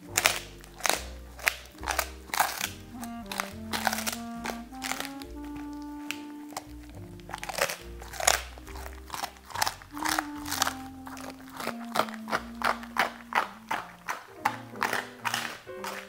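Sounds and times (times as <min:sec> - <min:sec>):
background music: 0:00.0 - 0:16.0
dog crunching a chew: 0:00.0 - 0:16.0.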